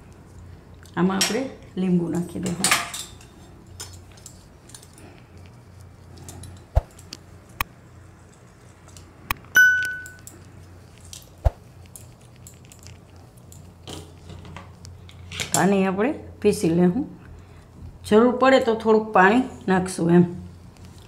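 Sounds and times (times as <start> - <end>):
ringing metal ding: 9.6 - 10.2.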